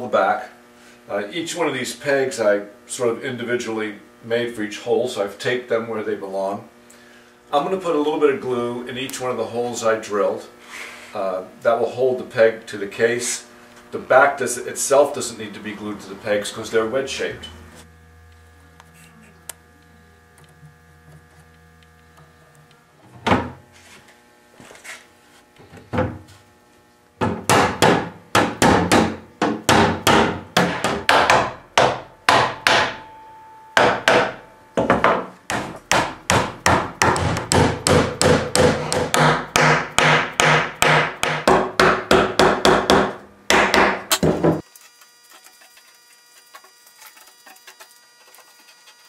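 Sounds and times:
hammer striking wooden pegs: 27.2s - 44.6s.

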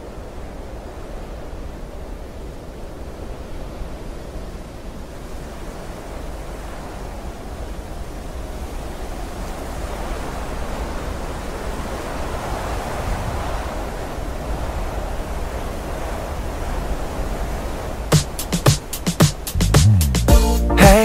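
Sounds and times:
steady rushing noise: 11.6s - 20.3s.

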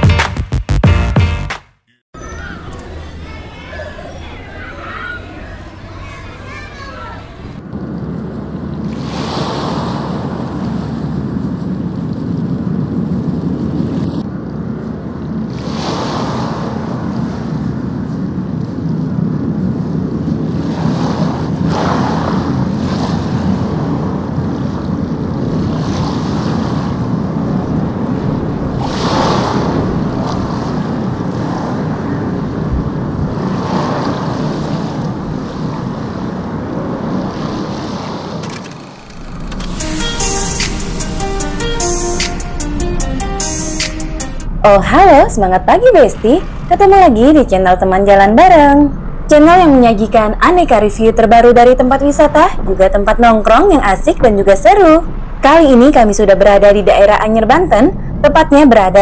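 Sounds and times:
wind rumble: 2.4s - 59.0s
sea waves breaking on beach: 8.8s - 11.4s, 15.4s - 41.6s.

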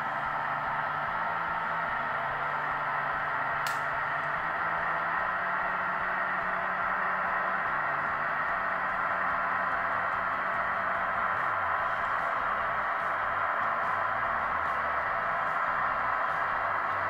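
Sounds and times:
model locomotive running hiss: 0.0s - 17.0s
sharp click: 3.6s - 3.9s.

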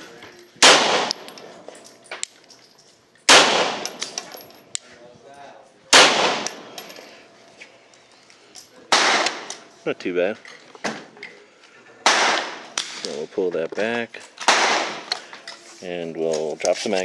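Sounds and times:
pistol shots with ringing echo: 0.6s - 1.6s, 3.3s - 4.3s, 5.9s - 6.9s, 8.9s - 9.6s, 12.0s - 13.1s, 14.4s - 15.1s.

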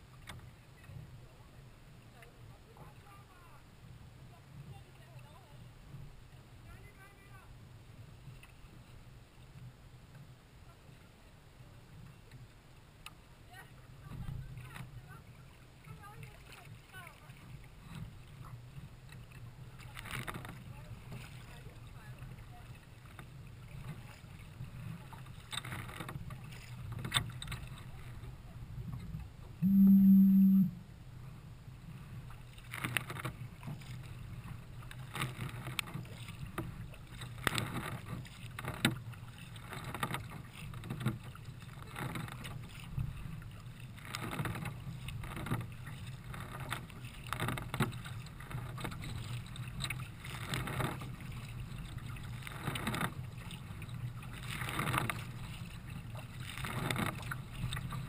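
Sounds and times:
kayak paddle splashing: 0.0s - 58.0s
loud steady low tone: 29.6s - 31.0s.

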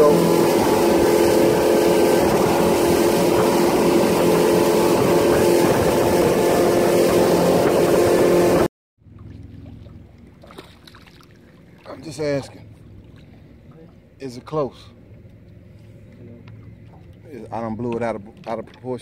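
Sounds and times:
wind and water rushing: 0.0s - 8.7s
boat engine drone: 0.0s - 19.0s.

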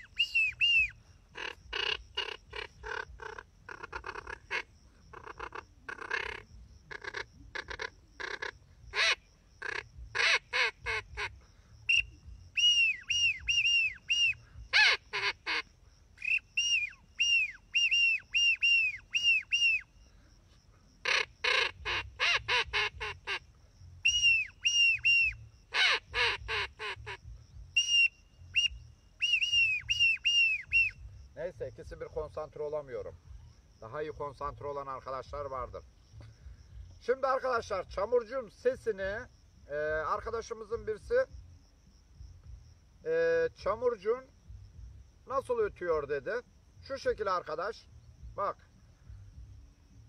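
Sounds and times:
whistled duck call notes: 0.0s - 19.9s, 21.0s - 23.4s, 24.0s - 31.1s
harsh quacking duck call: 1.4s - 11.4s, 14.7s - 16.4s, 21.0s - 23.4s, 25.1s - 27.2s.

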